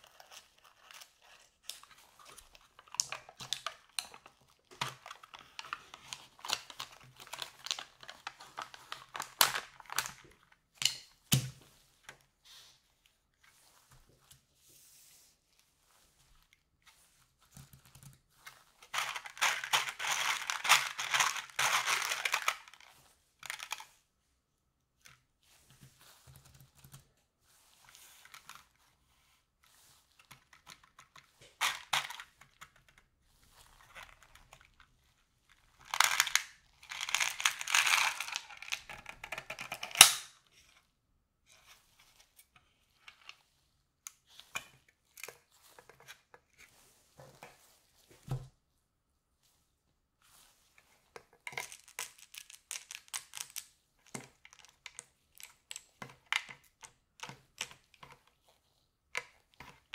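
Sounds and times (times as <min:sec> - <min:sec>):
hard balls rattling against plastic: 0:18.8 - 0:22.8, 0:31.4 - 0:32.6, 0:35.7 - 0:40.0, 0:51.4 - 0:57.8.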